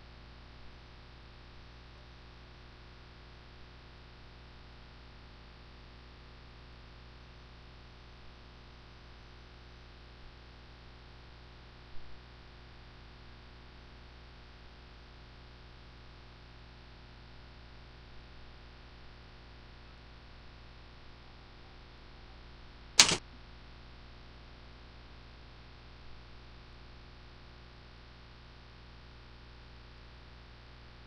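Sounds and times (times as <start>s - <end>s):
sharp knock: 23.0s - 23.2s.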